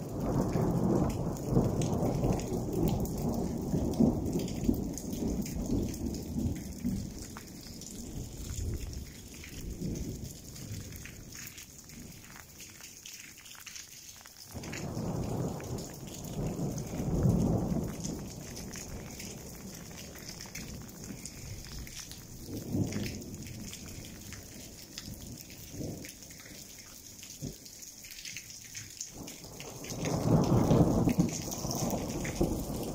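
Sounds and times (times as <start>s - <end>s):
thunder rumbling: 0.0s - 12.2s, 14.5s - 24.6s, 29.2s - 32.9s
rain patter: 0.0s - 32.9s.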